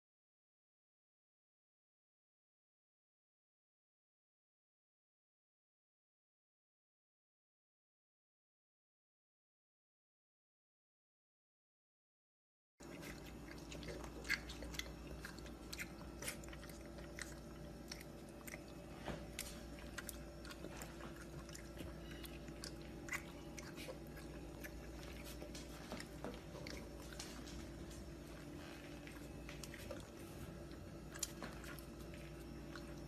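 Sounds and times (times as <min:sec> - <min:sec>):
faint hum: 0:12.8 - 0:33.0
puppy licking and smacking: 0:12.8 - 0:33.0.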